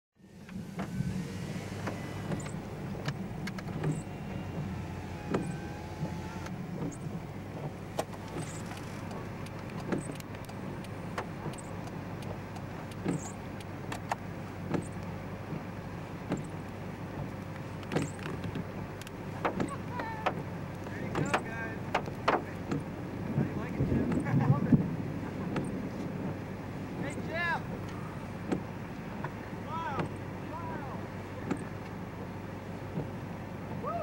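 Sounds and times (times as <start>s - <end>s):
car engine idling: 0.2s - 34.0s
sharp clicks and knocks: 1.8s - 4.1s, 7.6s - 15.1s, 17.5s - 22.9s, 27.8s - 29.4s.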